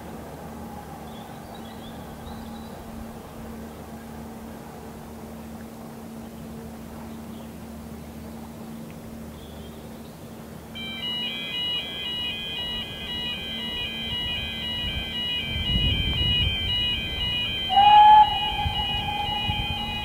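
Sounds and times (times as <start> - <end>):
two-tone electronic warning alarm: 10.8 - 20.0
low rumble: 14.9 - 20.0.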